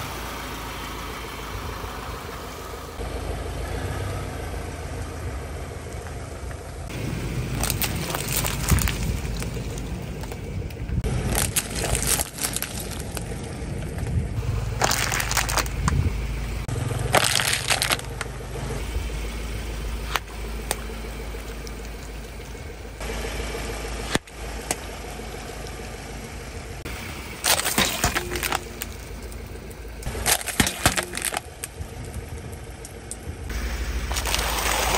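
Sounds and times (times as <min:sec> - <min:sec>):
car engine low hum: 0:00.0 - 0:34.9
water beads squashing: 0:07.4 - 0:10.4, 0:11.2 - 0:13.3, 0:14.8 - 0:16.0, 0:17.1 - 0:18.2, 0:27.4 - 0:31.6, 0:33.6 - 0:34.9
tyre crushing plastic bottles: 0:07.5 - 0:10.3, 0:11.2 - 0:13.3, 0:14.8 - 0:16.0, 0:17.1 - 0:18.3, 0:27.4 - 0:29.1, 0:30.1 - 0:31.6, 0:33.9 - 0:34.9.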